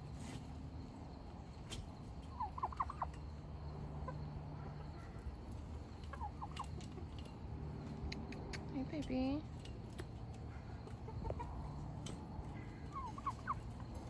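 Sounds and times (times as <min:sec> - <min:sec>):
turkeys gobbling: 0:02.2 - 0:03.4, 0:04.0 - 0:07.4, 0:10.4 - 0:14.0.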